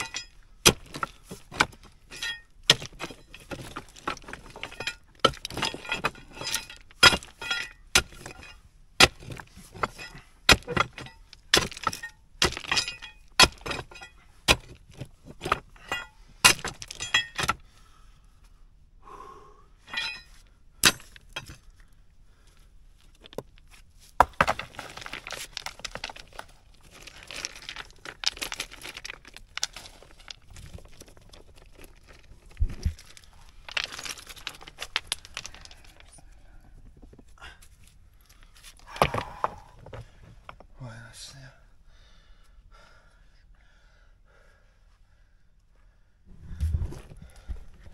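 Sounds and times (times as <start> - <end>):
metal bar knocking on stones: 0.0 - 17.6, 19.8 - 21.6
stones rattling and scraping: 0.0 - 17.8, 19.8 - 40.8, 46.3 - 47.9.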